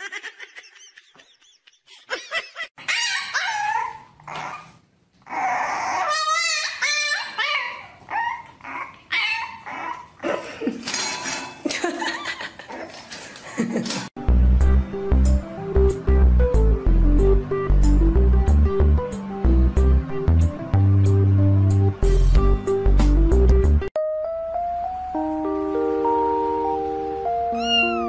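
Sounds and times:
dog whining and yipping: 2.8s - 10.2s, 27.6s - 28.0s
music with heavy bass: 14.2s - 23.9s.

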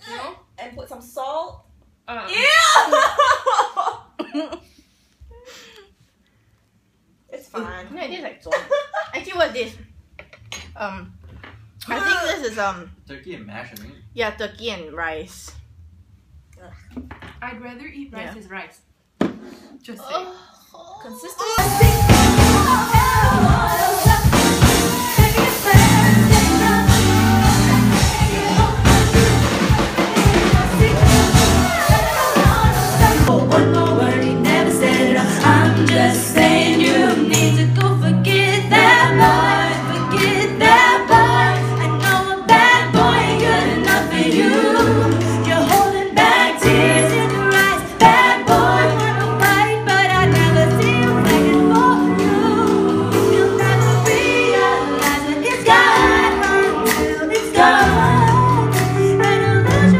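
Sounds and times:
women singing together: 21.5s - 59.9s
steady bass line: 21.6s - 37.7s.

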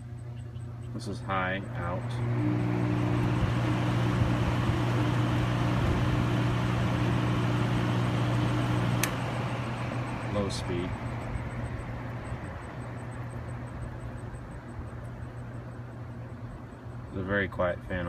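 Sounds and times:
fan motor hum: 0.0s - 18.0s
rush of air from fan: 1.3s - 17.1s
fan knob click: 8.9s - 9.4s.

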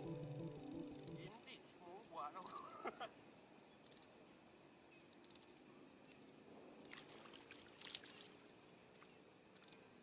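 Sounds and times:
high-pitched clicking bursts: 0.0s - 1.3s, 5.1s - 5.6s
faint low hum: 0.0s - 10.0s.

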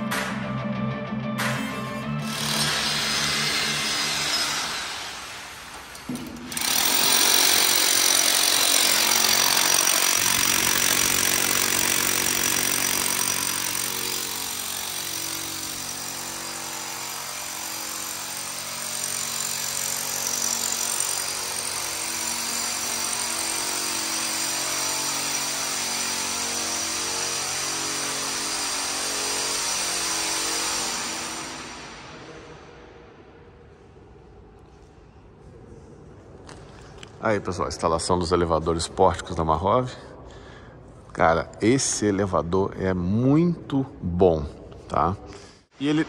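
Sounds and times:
power tool whining: 2.2s - 5.3s, 6.1s - 31.8s.

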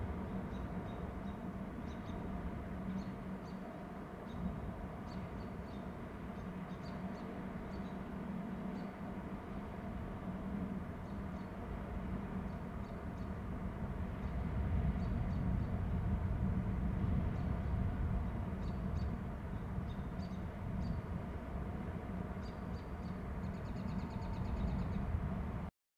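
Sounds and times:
steady low rumble: 8.4s - 25.7s.

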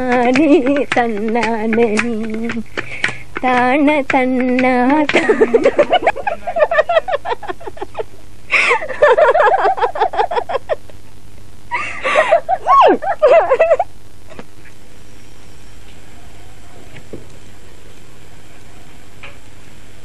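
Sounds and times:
woman singing: 0.0s - 2.7s, 3.4s - 5.7s
woman laughing: 0.2s - 0.9s, 5.1s - 11.0s, 11.7s - 14.7s.

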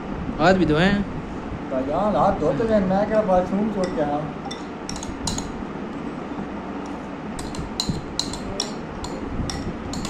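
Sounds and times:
dishes and utensils clinking: 3.8s - 5.6s, 6.9s - 10.0s.

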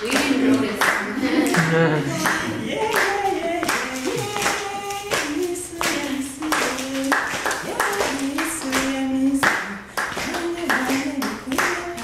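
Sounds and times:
hand claps: 0.0s - 12.0s
person singing unaccompanied: 0.0s - 12.0s.

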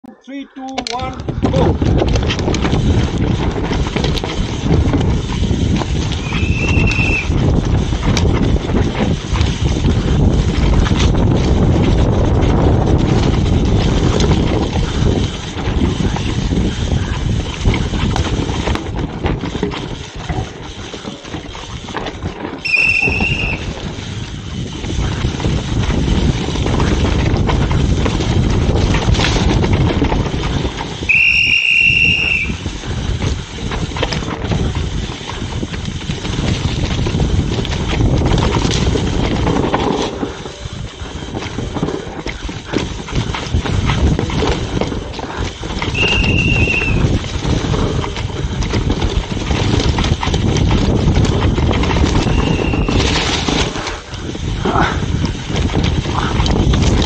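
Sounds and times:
bike tyre noise: 0.6s - 57.0s
bike knocks and clatters: 0.8s - 31.4s, 32.1s - 57.0s
wind rush on microphone: 0.8s - 57.0s
disc brake squeal: 6.2s - 7.3s, 22.7s - 23.7s, 46.0s - 47.0s, 52.2s - 53.0s.

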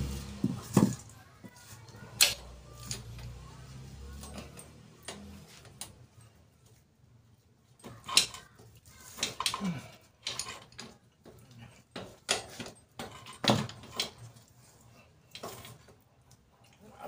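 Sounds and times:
wheel knocking and scraping: 0.0s - 5.9s.

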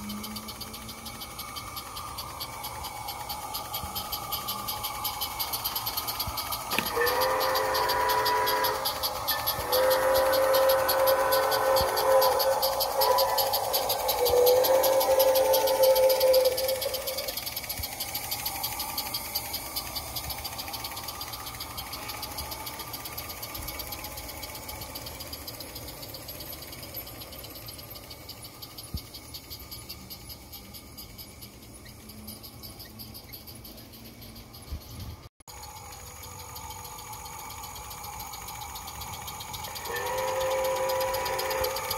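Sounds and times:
train rattling over track: 0.0s - 29.4s, 36.4s - 41.9s
model train whistle: 5.8s - 17.5s, 36.8s - 41.9s.

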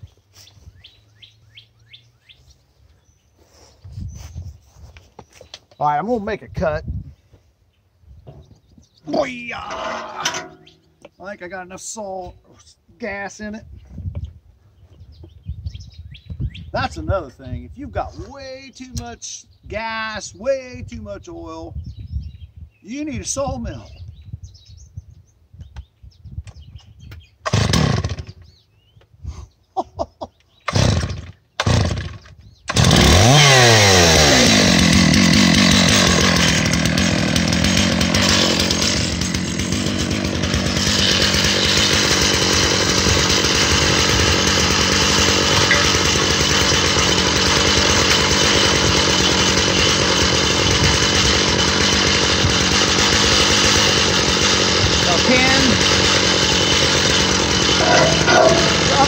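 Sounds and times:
chainsaw ripping through wood: 9.1s - 10.8s, 27.4s - 28.5s, 30.7s - 59.0s
chainsaw sputtering on pull-start: 27.4s - 28.4s, 30.7s - 59.0s.

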